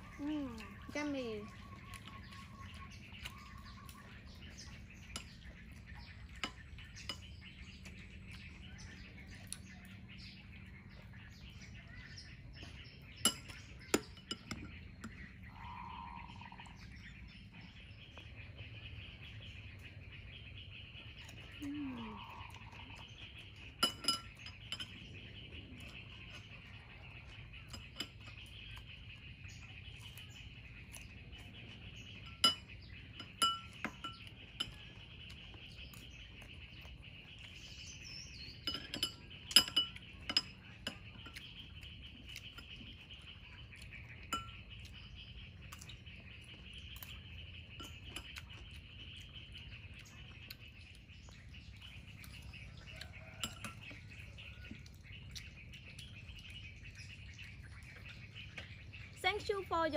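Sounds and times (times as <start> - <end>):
metal spoon clinking on glass bowl: 23.8 - 25.0, 32.3 - 34.8, 38.6 - 41.4, 53.2 - 53.9.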